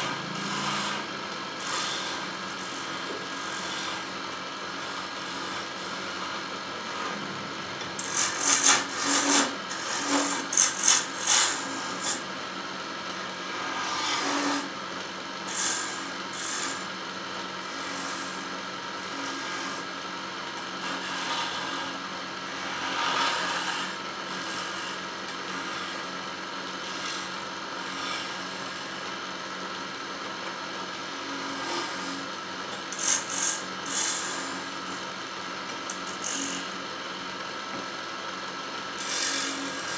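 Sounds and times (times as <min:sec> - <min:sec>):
chisel rasping on spinning wood: 0:00.0 - 0:12.3, 0:13.4 - 0:14.7, 0:15.5 - 0:16.8, 0:20.8 - 0:26.2, 0:26.8 - 0:29.0, 0:31.2 - 0:32.3, 0:32.9 - 0:35.0, 0:35.9 - 0:36.8, 0:39.0 - 0:39.9
wood lathe humming: 0:00.0 - 0:19.9, 0:20.6 - 0:30.2, 0:30.9 - 0:39.9.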